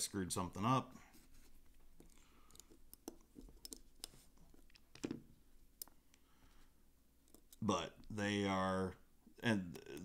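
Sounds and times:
faint metallic clicks and taps: 1.4s - 6.2s, 7.2s - 8.2s.

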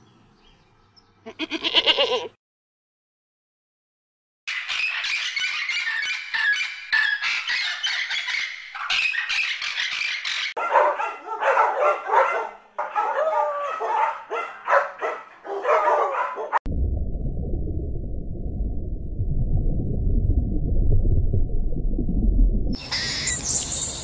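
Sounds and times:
parrots screeching: 4.5s - 10.5s, 22.9s - 23.4s
dog barking and yelping: 10.6s - 16.6s
low steady rumble: 16.7s - 22.8s.

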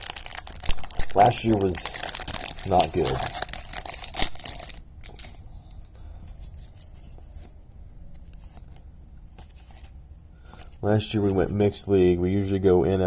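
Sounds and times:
sharp card crinkles: 0.0s - 5.4s
cards sliding and rustling: 6.3s - 11.4s.

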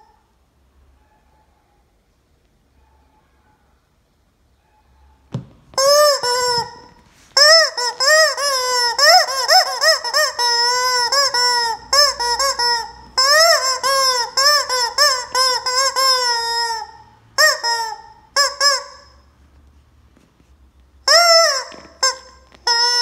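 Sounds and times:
rubber chicken toy squawking: 5.4s - 19.3s, 21.0s - 23.0s.

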